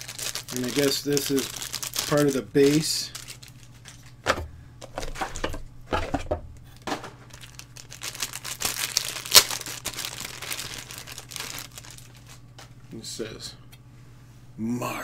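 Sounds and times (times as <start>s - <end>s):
plastic bag crinkling: 0.0s - 4.2s, 6.7s - 12.8s.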